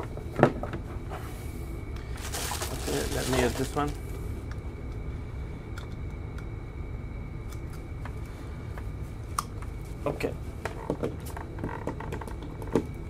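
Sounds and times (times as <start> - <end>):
faint high whine: 0.0 - 13.0
low hum: 0.8 - 10.7.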